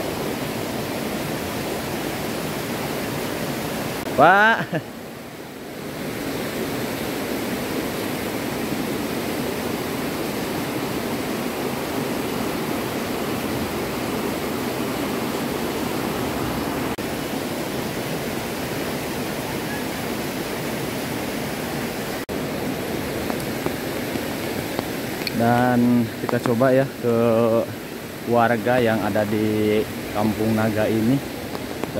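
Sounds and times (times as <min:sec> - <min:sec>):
river rapids roaring: 0:00.0 - 0:31.9.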